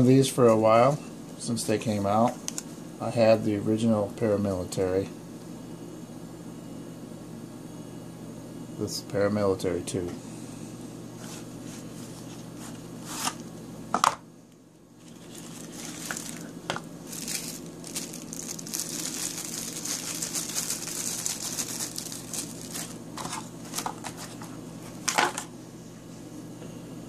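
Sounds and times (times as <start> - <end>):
low steady hum: 0.0 - 27.0
plastic bag crinkling: 15.0 - 24.6.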